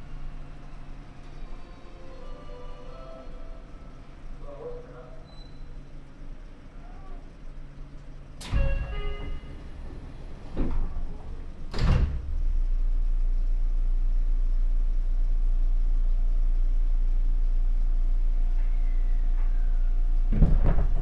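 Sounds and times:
steady low hum: 0:00.0 - 0:21.0
train sliding doors closing: 0:07.6 - 0:12.7.

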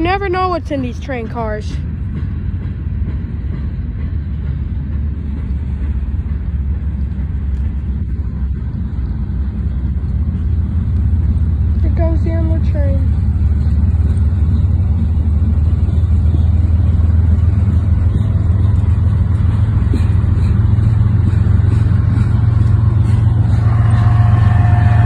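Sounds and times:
freight train wheels rumbling: 0:00.0 - 0:25.0
high whine: 0:22.3 - 0:25.0.

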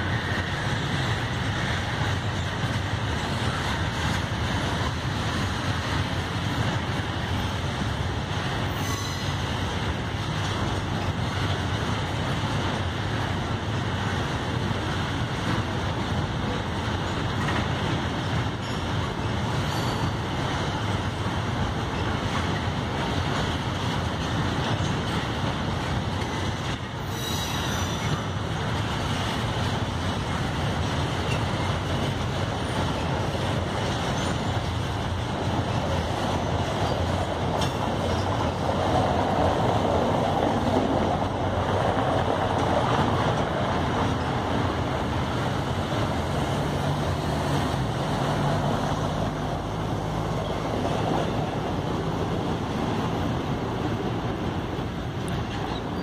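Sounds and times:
freight wagons rumbling on rails: 0:00.0 - 0:56.0
high-pitched wheel squeal: 0:08.8 - 0:09.4, 0:27.0 - 0:28.2.

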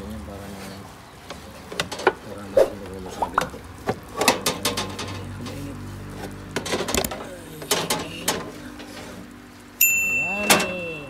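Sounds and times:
roasting pan clanking on oven rack: 0:04.1 - 0:05.6, 0:06.5 - 0:09.2, 0:10.0 - 0:11.0.

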